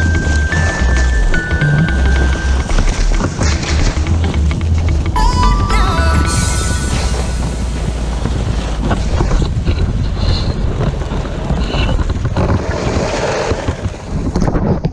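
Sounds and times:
wind buffeting microphone: 7.9s - 14.9s
snowboard scraping on snow: 8.6s - 14.2s.

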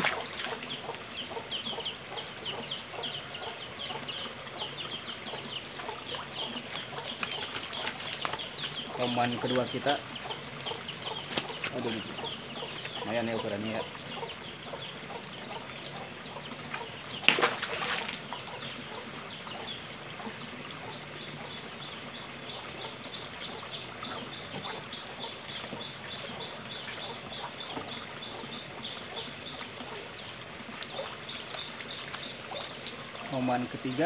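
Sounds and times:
splash into pond: 0.0s - 0.6s, 17.1s - 18.3s
chickens clucking: 0.0s - 34.0s.

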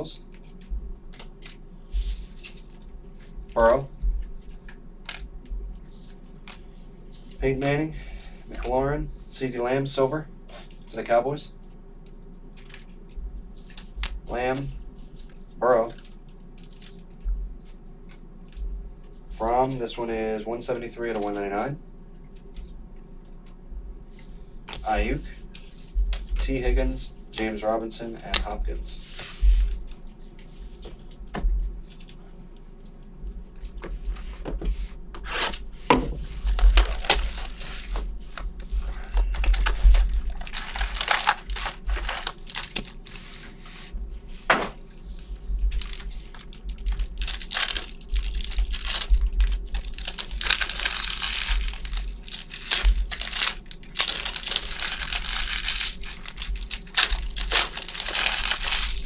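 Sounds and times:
card wrappers crinkling and ripping: 12.4s - 13.0s, 36.2s - 43.2s, 45.6s - 59.0s.

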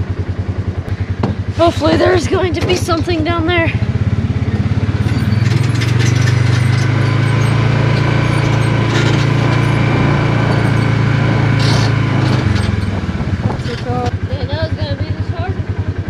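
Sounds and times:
small engine running: 0.0s - 16.0s
brief rattles: 5.0s - 14.1s.

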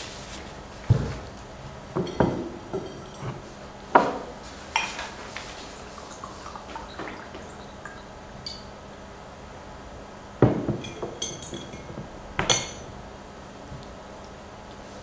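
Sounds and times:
glasses knocking and clinking: 1.9s - 3.4s, 10.4s - 12.9s.

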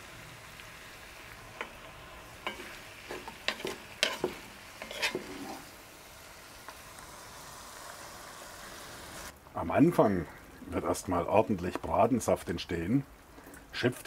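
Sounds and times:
meat and onions sizzling: 0.0s - 9.3s
wooden spoon scraping a pot: 1.6s - 5.7s.

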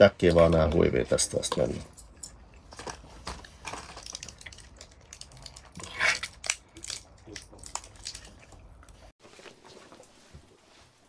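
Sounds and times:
fabric rustling: 9.2s - 11.0s.

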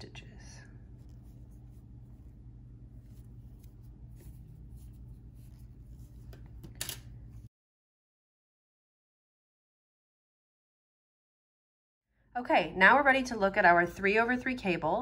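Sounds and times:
low steady hum: 0.0s - 7.5s.

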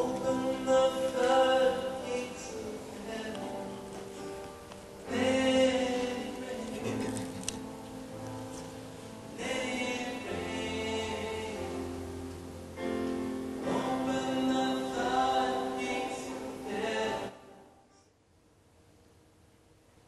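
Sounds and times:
choir singing sustained chords: 0.0s - 3.8s, 9.2s - 17.8s.

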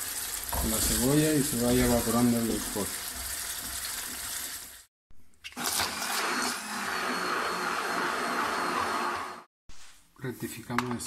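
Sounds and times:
food sizzling in a frying pan: 0.0s - 4.9s
hand blender running: 5.6s - 9.5s.

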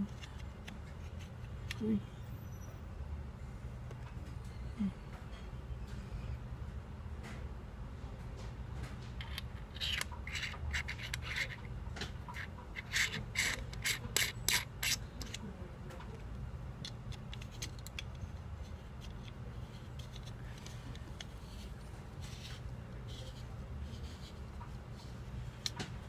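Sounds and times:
steady low hum: 0.0s - 26.0s
lens threads scraping and clicking: 9.2s - 15.4s, 16.8s - 26.0s.

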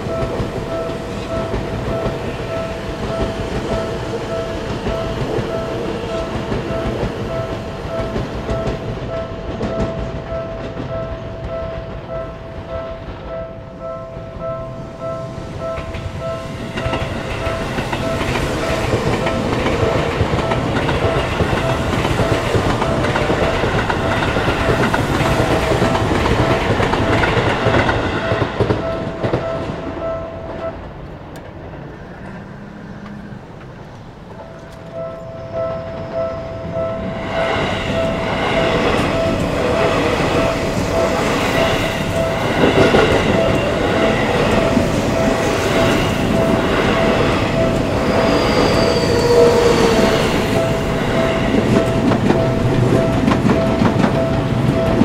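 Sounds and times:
train passing on rails: 0.0s - 55.0s
level crossing bell ringing: 34.3s - 55.0s.

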